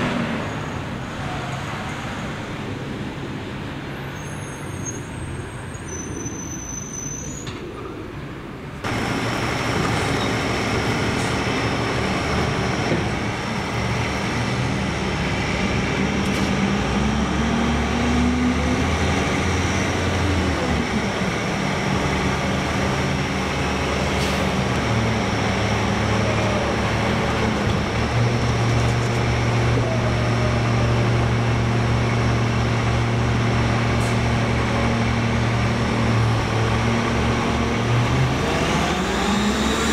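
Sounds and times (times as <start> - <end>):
diesel truck engine running: 8.8 - 39.1.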